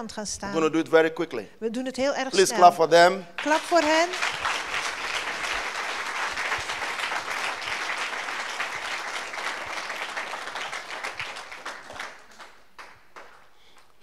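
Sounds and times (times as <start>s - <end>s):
congregation applauding: 3.4s - 14.0s.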